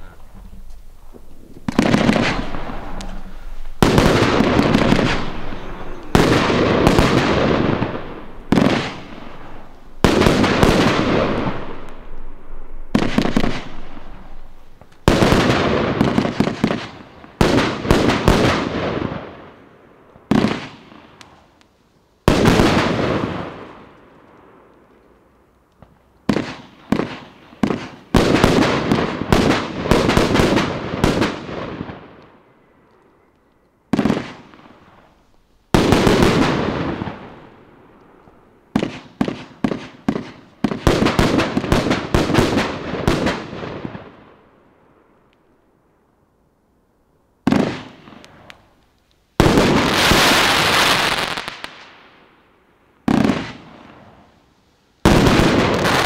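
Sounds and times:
firework bangs: 0:00.0 - 0:21.5, 0:22.2 - 0:24.0, 0:26.2 - 0:32.4, 0:33.9 - 0:44.4, 0:47.4 - 0:48.7, 0:49.4 - 0:52.2, 0:53.0 - 0:54.4, 0:55.0 - 0:56.0
firework crackling: 0:00.0 - 0:44.4, 0:47.4 - 0:52.4, 0:53.0 - 0:56.0.

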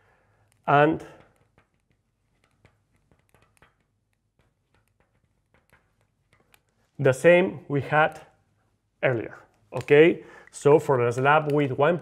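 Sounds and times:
marker tapping on glass: 0:01.1 - 0:06.7.

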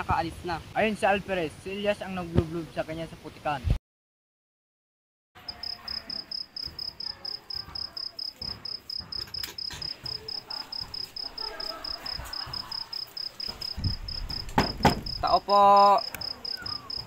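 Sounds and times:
cricket chirping: 0:05.4 - 0:17.0.

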